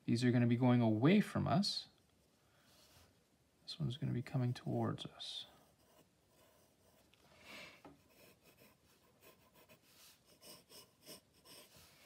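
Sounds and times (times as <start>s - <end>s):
pencil scratching on paper: 5.5s - 7.1s, 8.0s - 12.0s.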